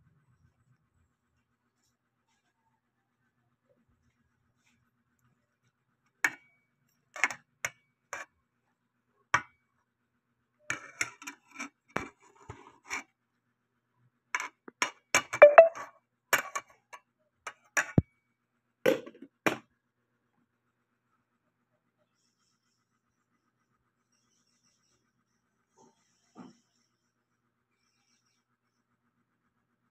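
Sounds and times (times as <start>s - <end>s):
metal spoon scraping metal pot: 10.7s - 13.0s.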